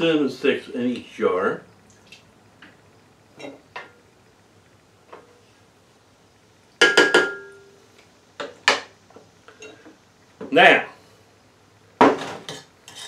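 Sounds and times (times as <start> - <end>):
wooden spoon knocking metal pot: 6.8 - 7.6.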